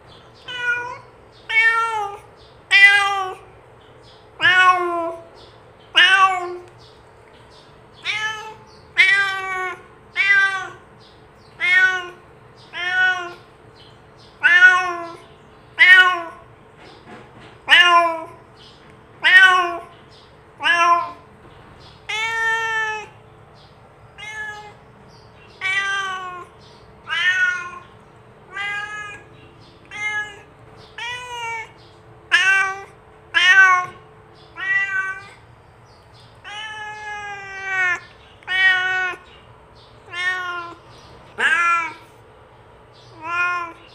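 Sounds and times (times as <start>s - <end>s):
cat meowing: 0.3s - 3.5s, 4.4s - 6.8s, 8.0s - 10.9s, 11.5s - 13.5s, 14.3s - 16.5s, 17.6s - 18.4s, 19.2s - 20.0s, 20.6s - 21.3s, 22.0s - 23.2s, 24.1s - 24.8s, 25.4s - 35.5s, 36.4s - 39.3s, 40.0s - 42.2s, 43.1s - 43.9s.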